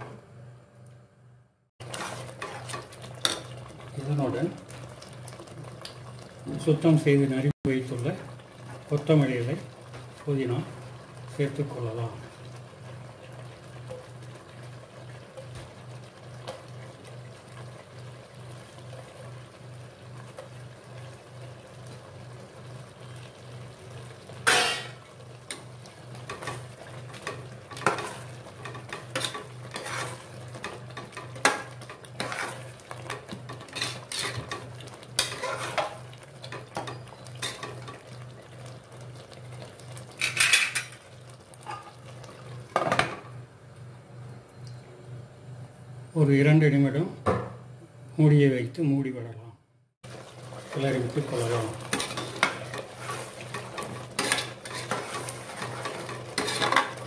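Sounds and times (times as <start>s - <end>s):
ladle scraping metal pot: 1.8s - 3.4s, 27.8s - 31.6s, 32.2s - 32.7s, 33.5s - 34.6s, 35.2s - 36.0s, 51.3s - 57.0s.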